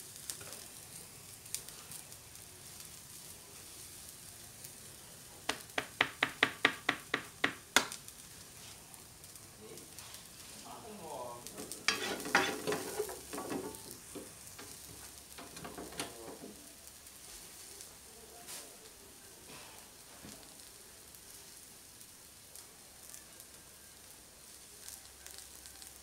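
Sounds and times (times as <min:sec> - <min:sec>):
vegetables sizzling in oil: 0:00.0 - 0:26.0
wooden spatula scraping pan: 0:11.5 - 0:16.6.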